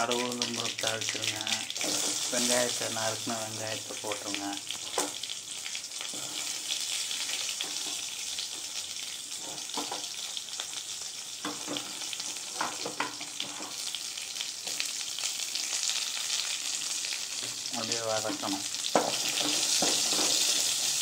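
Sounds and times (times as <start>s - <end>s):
oil crackles: 0.0s - 8.6s
onions sizzling in hot oil: 0.0s - 21.0s.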